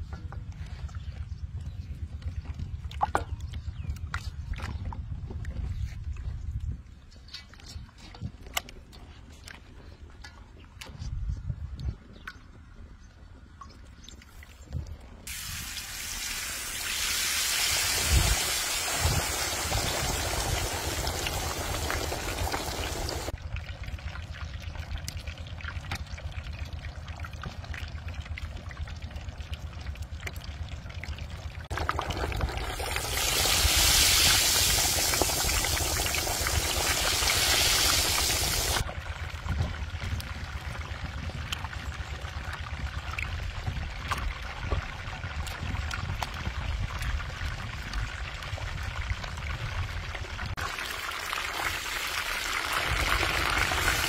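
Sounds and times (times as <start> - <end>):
water rushing: 15.3 - 23.4, 31.7 - 38.8.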